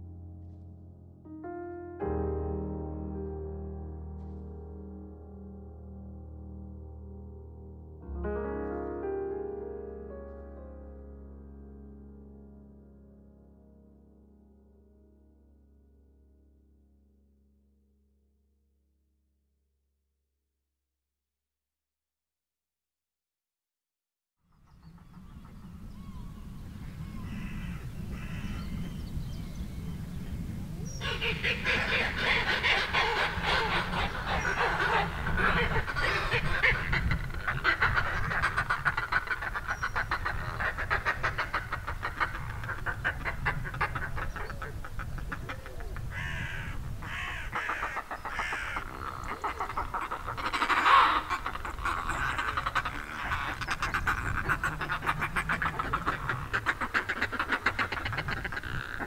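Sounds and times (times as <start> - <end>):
seabirds calling: 24.6 - 59.0.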